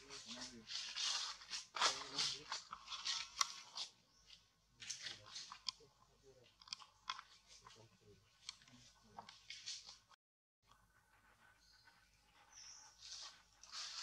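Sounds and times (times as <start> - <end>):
faint clicks and crackles: 0.2 - 10.8.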